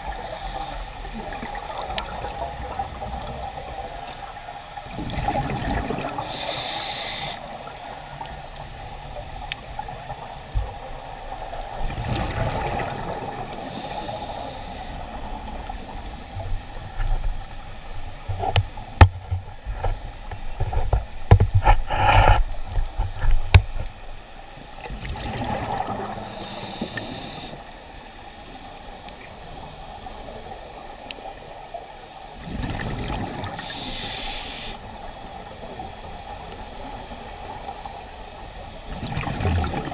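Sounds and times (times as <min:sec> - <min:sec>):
diver exhaling bubbles underwater: 0:04.9 - 0:06.2, 0:24.9 - 0:26.2, 0:32.4 - 0:33.7, 0:38.9 - 0:39.9
sharp clicks and knocks: 0:18.3 - 0:23.9.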